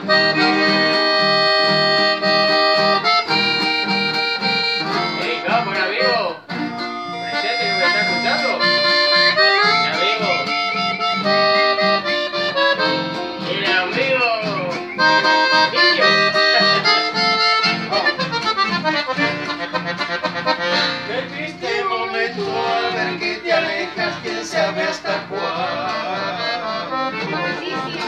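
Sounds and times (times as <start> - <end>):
accordion: 0.0 - 28.0
classical guitars playing: 0.0 - 28.0.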